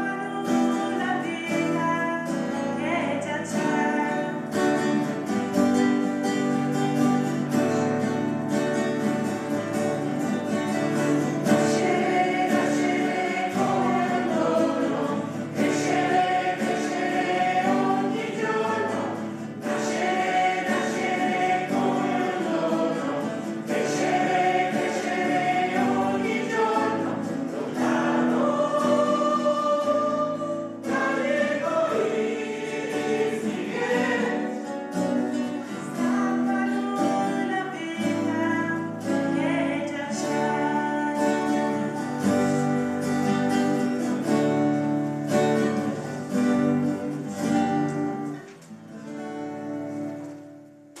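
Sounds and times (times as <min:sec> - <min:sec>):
mixed choir singing: 0:11.4 - 0:38.4, 0:39.1 - 0:43.1.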